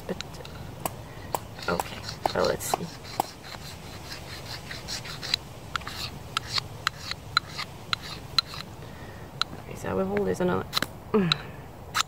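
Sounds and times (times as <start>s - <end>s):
knife scraping ferro rod: 1.4s - 8.8s.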